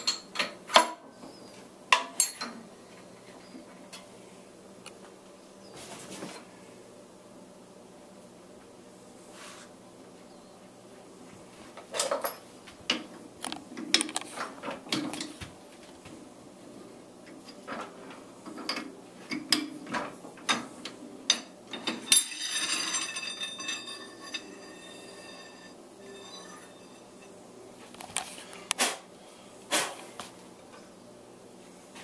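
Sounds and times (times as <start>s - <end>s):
metal clang ringing: 21.3s - 27.4s.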